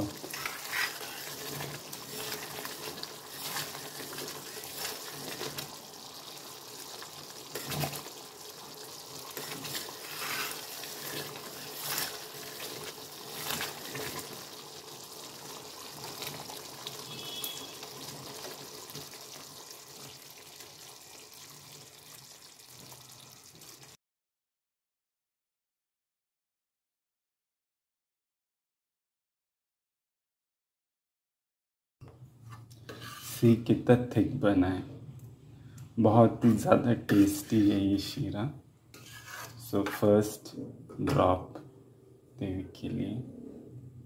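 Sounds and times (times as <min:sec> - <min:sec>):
thick food bubbling and sizzling: 0:00.0 - 0:24.0, 0:36.1 - 0:38.2, 0:38.9 - 0:40.1.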